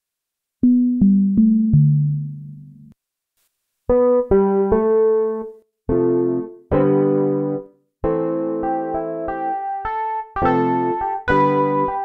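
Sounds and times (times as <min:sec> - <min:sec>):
electric piano synthesizer notes: 0:03.9 - 0:12.0.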